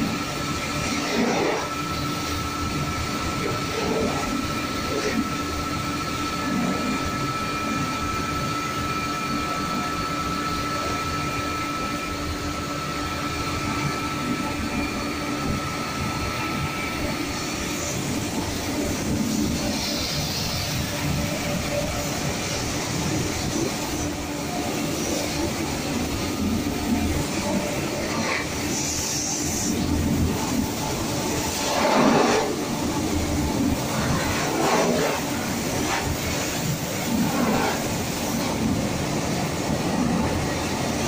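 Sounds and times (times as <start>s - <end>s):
thin steady whine: 0.0s - 41.0s
rotating brushes scrubbing: 31.1s - 38.8s.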